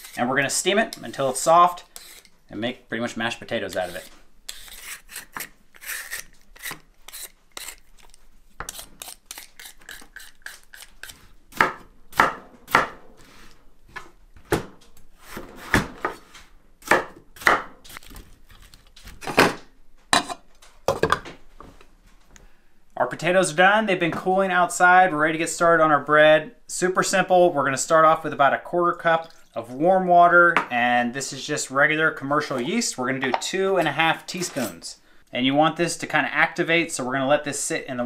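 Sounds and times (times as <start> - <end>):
peeler scraping potato skin: 0.0 - 2.3, 3.6 - 11.4
knife chopping on wooden board: 11.5 - 13.0, 16.8 - 17.7.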